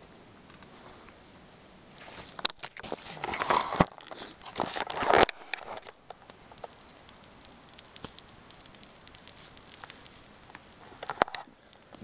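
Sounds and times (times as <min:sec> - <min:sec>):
camera handling rustling: 0:02.3 - 0:06.7.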